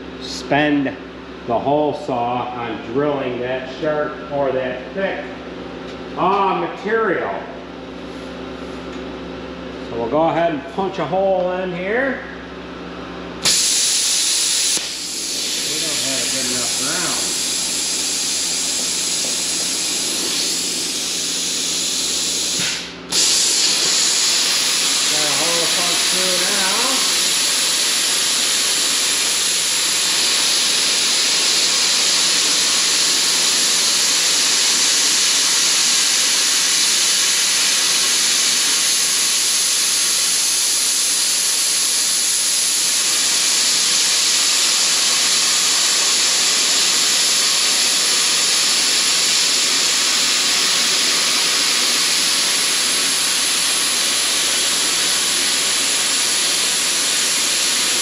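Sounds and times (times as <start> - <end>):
plasma cutter hissing: 13.4 - 58.0.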